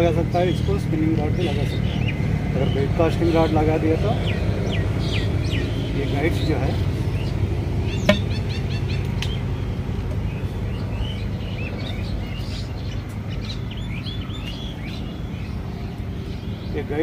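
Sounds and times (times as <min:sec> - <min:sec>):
small birds chirping: 0:00.0 - 0:17.0
sharp click: 0:08.1 - 0:08.3.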